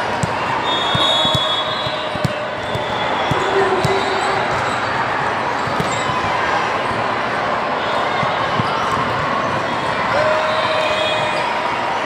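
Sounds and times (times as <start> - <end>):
chatter of people: 0.0 - 12.0
ball thumping: 0.2 - 4.7.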